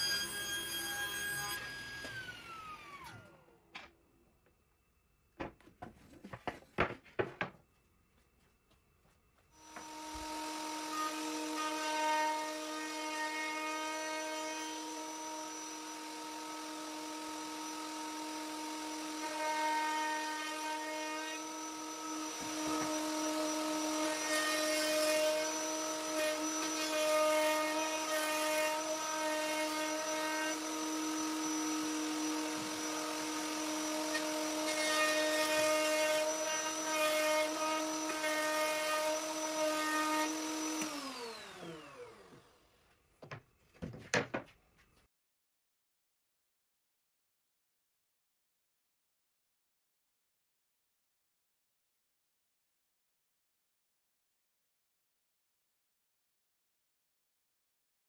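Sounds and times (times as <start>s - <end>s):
router cutting wood: 0.0s - 3.6s, 9.6s - 42.7s
wood router whining: 0.0s - 4.0s, 9.6s - 43.4s.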